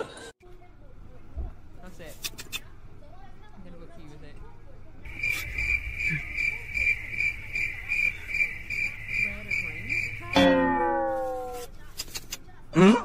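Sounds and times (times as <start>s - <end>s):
cricket chirping: 5.1s - 11.4s.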